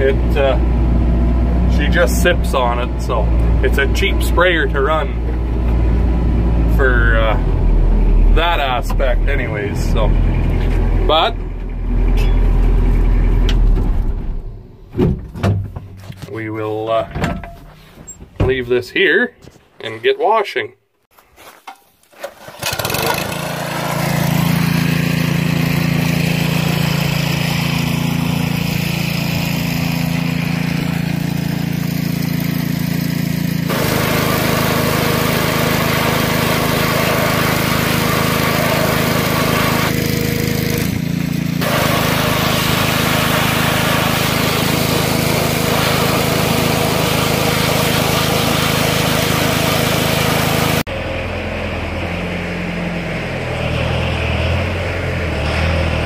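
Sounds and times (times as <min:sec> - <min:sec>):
pressure washer engine running: 0:00.0 - 0:11.3, 0:22.4 - 0:55.7
high-pressure water spray hissing: 0:41.6 - 0:50.7.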